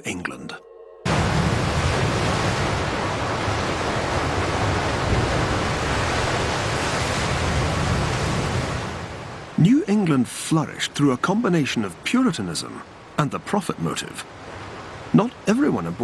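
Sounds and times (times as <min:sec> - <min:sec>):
surf crashing on rocky shore: 0:01.1 - 0:10.1.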